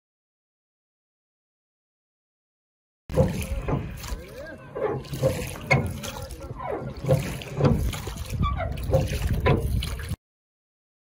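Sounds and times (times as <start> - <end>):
oars knocking in oarlocks: 3.1 - 10.2
water sloshing: 3.1 - 10.2.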